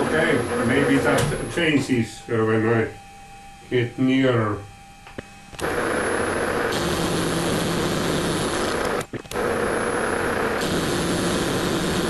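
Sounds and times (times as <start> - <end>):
lathe mechanical whirr: 0.0 - 2.0, 5.4 - 12.0.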